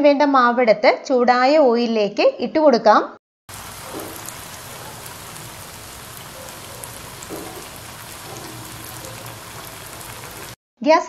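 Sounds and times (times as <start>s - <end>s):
oil sizzling while deep-frying: 3.5s - 10.6s.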